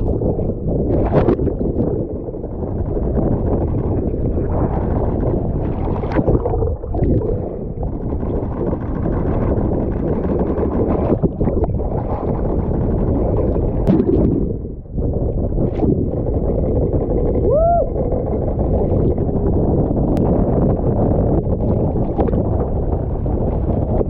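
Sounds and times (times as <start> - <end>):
seawater rushing and slapping: 0.0 - 24.0
wind buffeting microphone: 0.0 - 24.0.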